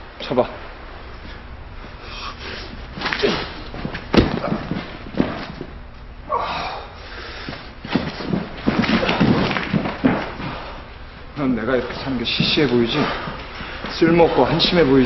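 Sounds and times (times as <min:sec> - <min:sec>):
boxing glove punches landing: 0:03.0 - 0:05.6
pained groan: 0:06.3 - 0:07.0.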